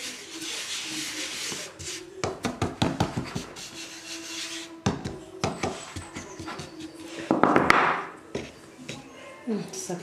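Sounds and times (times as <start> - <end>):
hands rubbing flour on wooden board: 0.0 - 4.8.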